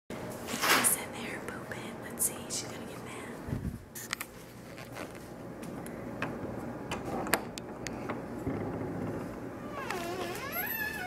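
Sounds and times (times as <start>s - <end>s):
wooden door opening: 8.5s - 11.0s.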